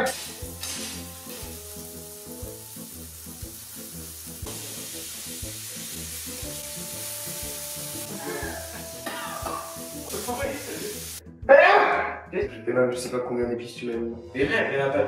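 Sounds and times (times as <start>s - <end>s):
burger sizzling in a pan: 0.0s - 11.2s.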